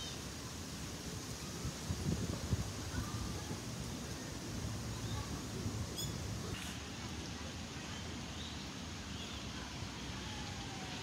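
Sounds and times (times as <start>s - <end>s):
low rumble and rustle: 0.0s - 11.0s
faint bird chirps: 5.9s - 6.8s.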